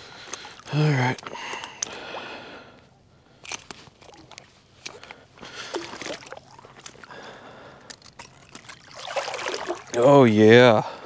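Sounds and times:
water sloshing on rocks: 3.5s - 10.2s.

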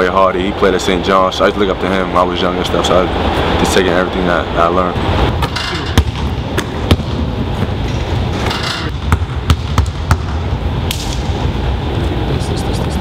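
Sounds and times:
steady low hum: 0.0s - 13.0s
basketballs bouncing on wood floor: 5.9s - 7.7s, 8.9s - 10.5s.

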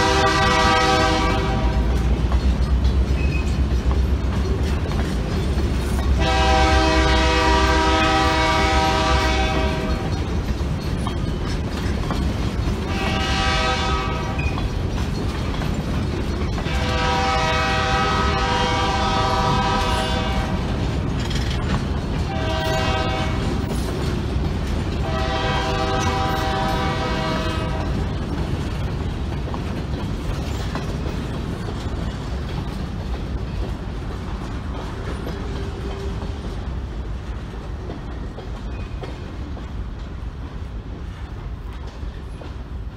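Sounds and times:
locomotive horn blasts: 0.0s - 2.0s, 6.2s - 10.1s, 12.9s - 14.4s, 16.6s - 20.6s, 22.3s - 23.6s, 25.0s - 28.0s
train wheels rumbling and clicking: 0.0s - 42.9s.

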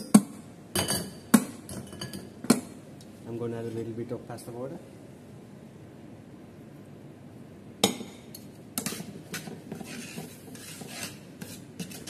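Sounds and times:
metal utensils scraping a pan: 8.8s - 12.0s.

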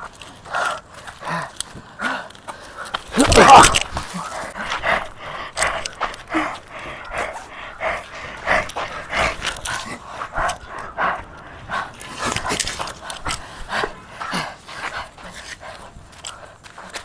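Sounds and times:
person gasping heavily: 0.5s - 10.2s.

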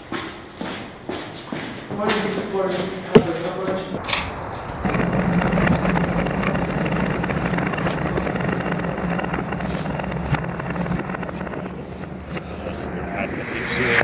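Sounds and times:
steady low rumble: 3.0s - 14.0s.

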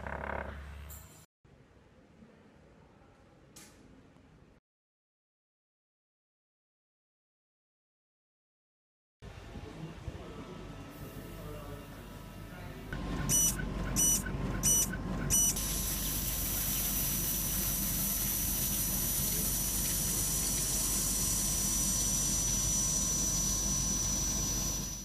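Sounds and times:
mechanical rumble and hiss: 9.4s - 25.0s
electronic alarm beeping: 13.2s - 15.6s.

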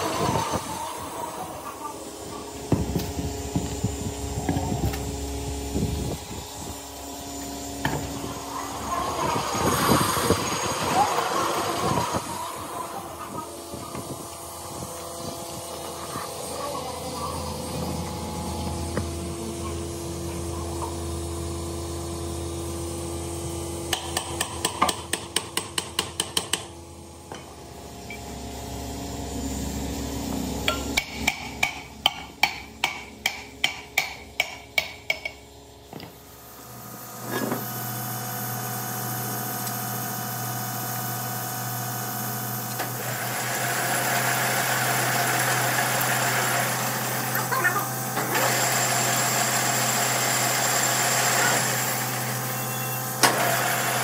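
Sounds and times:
steady machine hum: 0.0s - 54.0s
hammer striking metal: 30.7s - 35.4s.

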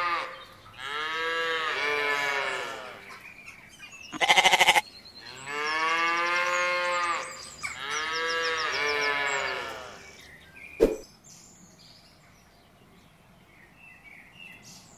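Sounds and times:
cow mooing: 0.0s - 3.0s.

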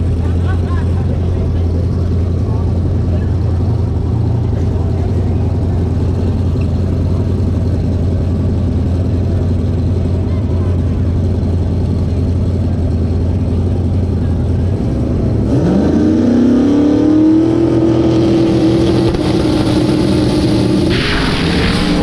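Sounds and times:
drag race cars engine roar: 0.0s - 22.0s
rush of noise: 17.7s - 22.0s.

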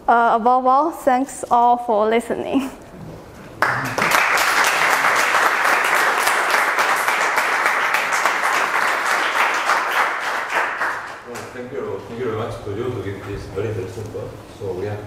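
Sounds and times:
audience applauding: 3.5s - 11.6s.

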